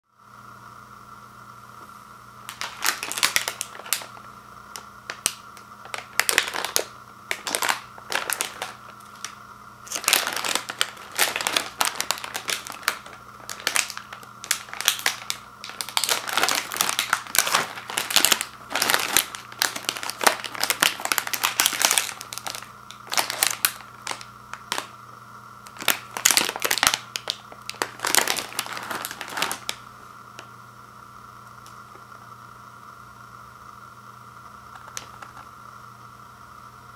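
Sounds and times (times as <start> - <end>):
plastic wrapper crinkling: 2.5 - 25.0, 25.6 - 30.5, 34.7 - 35.5.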